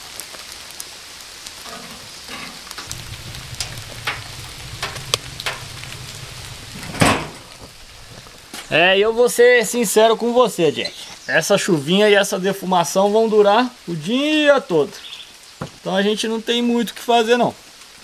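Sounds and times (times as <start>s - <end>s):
light rain pattering: 0.0s - 18.0s
rustle: 0.0s - 18.0s
low rumble: 1.6s - 9.2s.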